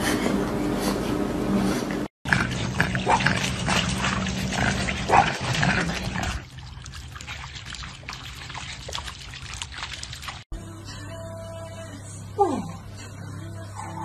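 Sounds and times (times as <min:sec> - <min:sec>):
water splashing and trickling: 0:02.3 - 0:10.5.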